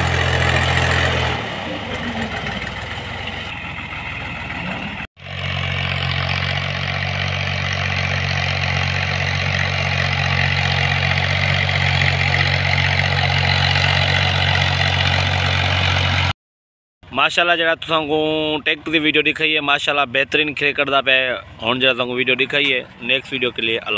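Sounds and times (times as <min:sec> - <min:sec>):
tractor diesel engine running: 0:00.0 - 0:16.3.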